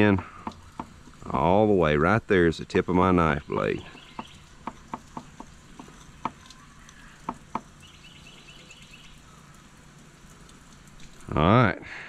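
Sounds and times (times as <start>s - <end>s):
bird chirping: 3.0s - 10.6s.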